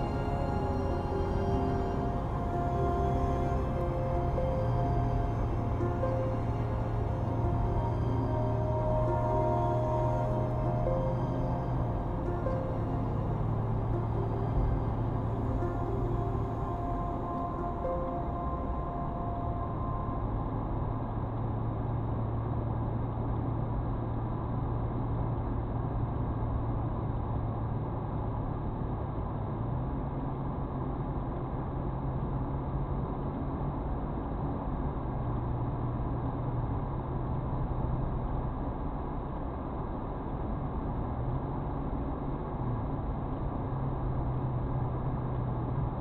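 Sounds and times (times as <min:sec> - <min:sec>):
car engine and tyre drone: 0:00.0 - 0:46.0.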